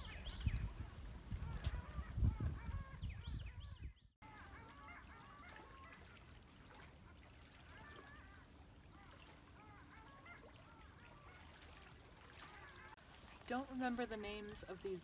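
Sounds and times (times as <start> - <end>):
distant ducks calling: 0.0 - 15.0.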